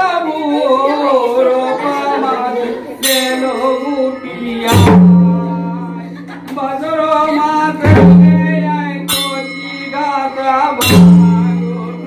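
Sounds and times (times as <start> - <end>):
hand cymbals clashing: 3.0 - 6.4, 7.2 - 12.0.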